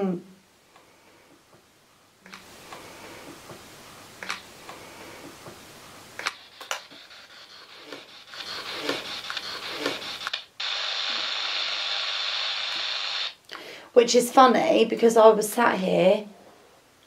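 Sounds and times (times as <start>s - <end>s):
loud static hiss: 0.0s - 13.9s
radio static clicks and bursts: 6.2s - 13.4s.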